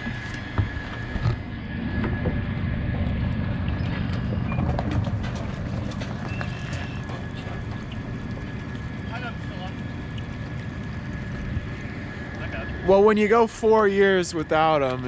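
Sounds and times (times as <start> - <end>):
vehicle rumbling over gravel: 1.3 - 9.7.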